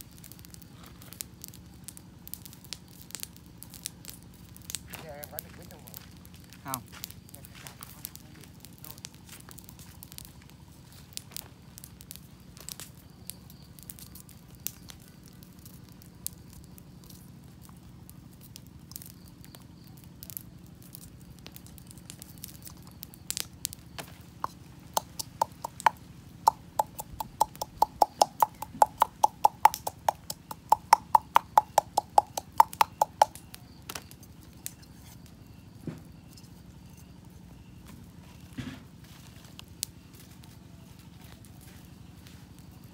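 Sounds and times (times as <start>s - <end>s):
campfire crackling: 0.0s - 42.9s
tapping inside metal cup: 24.4s - 33.4s.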